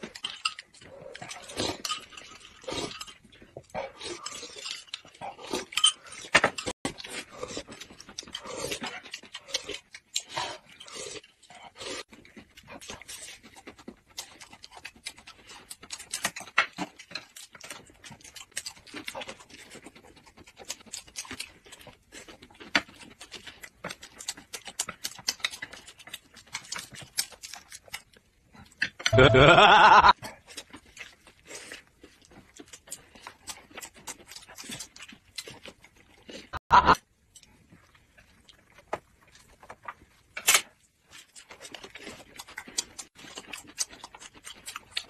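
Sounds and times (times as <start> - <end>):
people chewing and smacking: 0.0 - 45.0
loud pitch-bending vocal sound: 29.2 - 30.1, 36.7 - 37.0.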